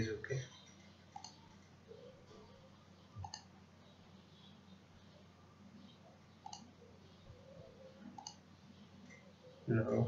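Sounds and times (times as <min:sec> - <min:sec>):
faint room hiss: 0:00.0 - 0:10.0
computer mouse click: 0:00.6 - 0:01.7, 0:03.2 - 0:03.5, 0:06.4 - 0:06.7, 0:08.2 - 0:08.4.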